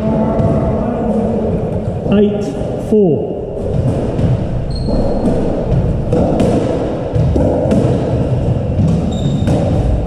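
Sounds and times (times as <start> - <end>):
ball hits off court walls: 3.6 - 10.0
shoe squeak on wooden floor: 4.7 - 5.5, 9.0 - 9.5.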